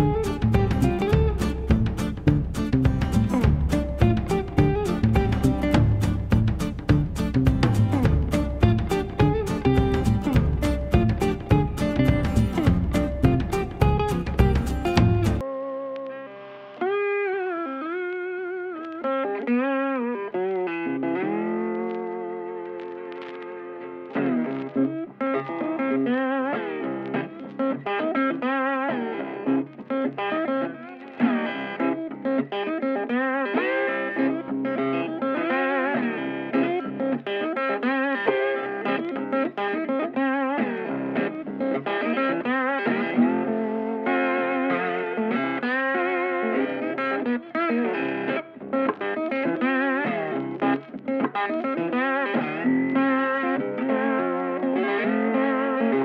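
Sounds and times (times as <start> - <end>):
electric guitar melody with bent notes: 0.0 - 56.0.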